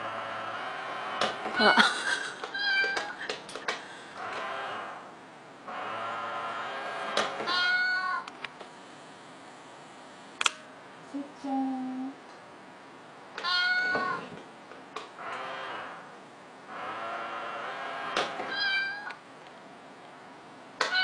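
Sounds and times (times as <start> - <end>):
cat meowing: 2.5 - 3.2, 7.5 - 8.3, 13.4 - 14.3, 18.5 - 19.2
sharp clicks: 10.4 - 10.6.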